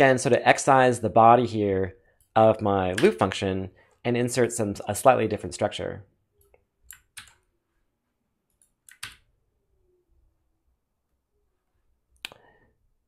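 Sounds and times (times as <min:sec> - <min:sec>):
keyboard and mouse clicks: 0:06.4 - 0:07.4, 0:08.5 - 0:09.3.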